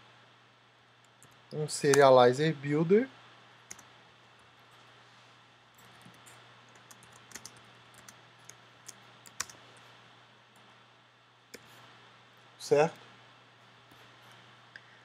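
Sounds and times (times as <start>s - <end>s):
typing on computer keyboard: 5.8s - 9.6s.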